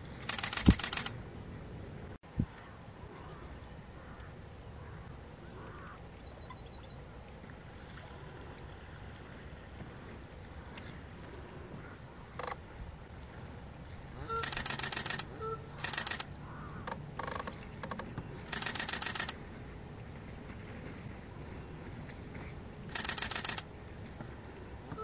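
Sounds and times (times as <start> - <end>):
camera shutter clicks: 0.2 - 1.1, 14.4 - 16.3, 16.9 - 19.4, 22.9 - 23.7.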